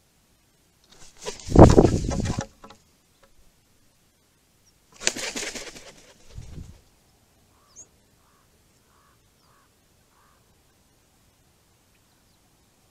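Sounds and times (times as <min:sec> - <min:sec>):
bird wings flapping: 0:00.9 - 0:02.8, 0:05.0 - 0:06.8
faint soft bird calls: 0:06.0 - 0:11.2.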